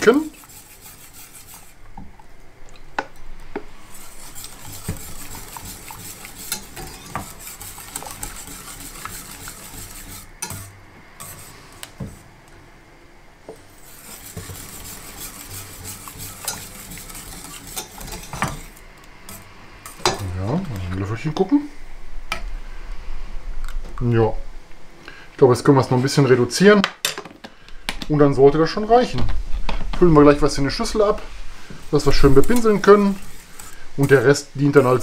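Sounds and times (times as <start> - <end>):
whisk scraping a saucepan: 0.0 - 1.9, 3.8 - 12.2, 13.7 - 20.3, 31.9 - 35.0.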